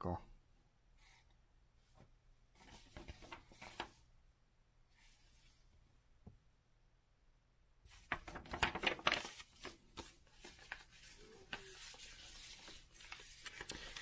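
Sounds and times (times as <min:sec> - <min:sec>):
paper crinkling and rustling: 0:02.6 - 0:04.0, 0:07.9 - 0:14.0.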